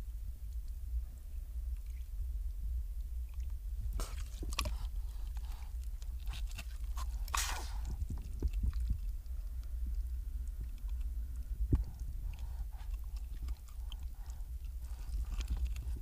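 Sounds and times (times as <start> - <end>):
low steady rumble: 0.0 - 16.0
water sloshing: 3.3 - 16.0
seal puffing breath: 3.9 - 16.0.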